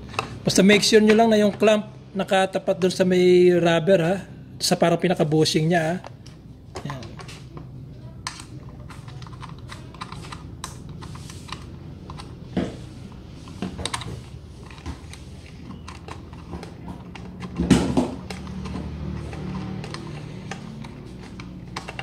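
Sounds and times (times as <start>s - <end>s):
metal and plastic parts clicking: 8.2s - 12.4s, 13.5s - 22.0s.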